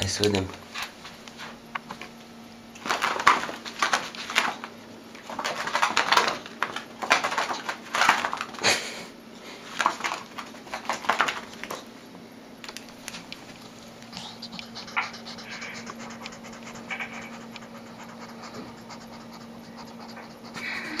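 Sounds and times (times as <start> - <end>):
faint steady hum: 0.0 - 21.0
kitten claws scratching on rug: 13.4 - 20.7.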